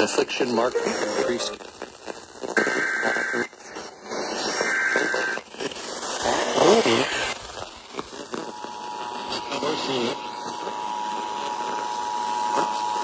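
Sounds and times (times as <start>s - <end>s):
buzzy digital data bursts: 0.6s - 3.4s.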